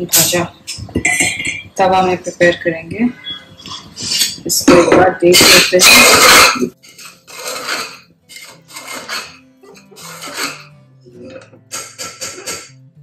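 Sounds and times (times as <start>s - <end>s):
soft background music: 0.0s - 13.0s
spoon scraping pressure cooker: 3.2s - 12.8s.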